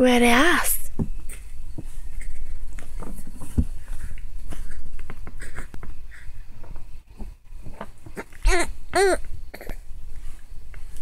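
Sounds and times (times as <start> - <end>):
baby cooing: 8.2 - 9.8.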